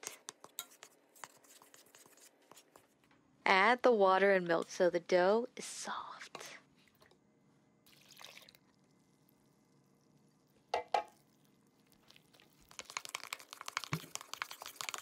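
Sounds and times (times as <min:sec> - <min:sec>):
fork scraping and tapping a bowl: 0:00.2 - 0:02.1, 0:12.8 - 0:15.0
liquid poured into a bowl: 0:07.8 - 0:15.0.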